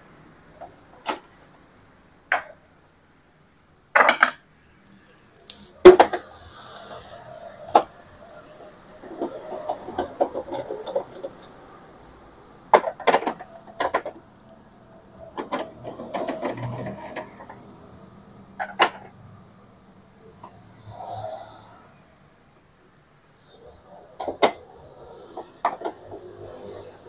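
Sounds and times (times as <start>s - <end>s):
printer parts knocking and rattling: 4.0s - 6.3s, 7.6s - 11.8s, 12.7s - 17.7s, 18.6s - 19.2s.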